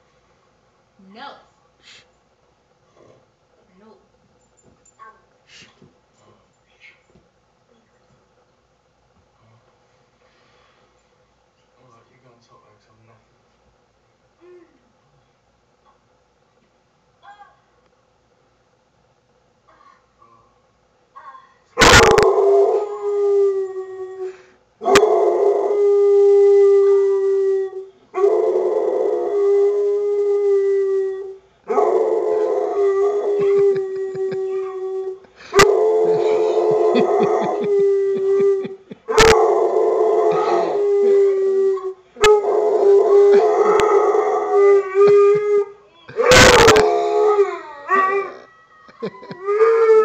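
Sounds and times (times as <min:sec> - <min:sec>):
dog howling: 0:21.8 - 0:50.0.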